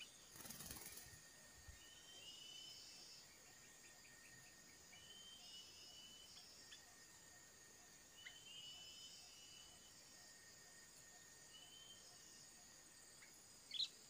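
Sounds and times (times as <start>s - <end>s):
bird chirps: 0.0s - 7.3s, 7.9s - 10.0s, 11.1s - 12.4s, 13.1s - 14.0s
insect buzz: 0.0s - 14.0s.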